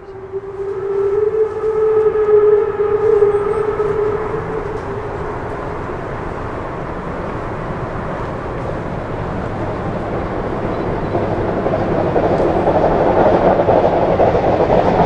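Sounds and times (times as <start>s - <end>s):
steam locomotive whistle: 0.0s - 6.8s
locomotive rumble: 0.0s - 15.0s.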